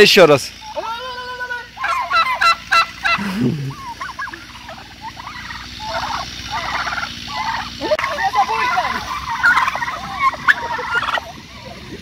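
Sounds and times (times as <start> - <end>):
turkeys gobbling: 0.5 - 12.0.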